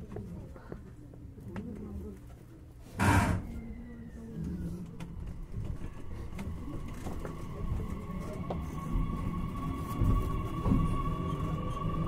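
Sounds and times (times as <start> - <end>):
train running gear rumble: 4.4 - 12.0.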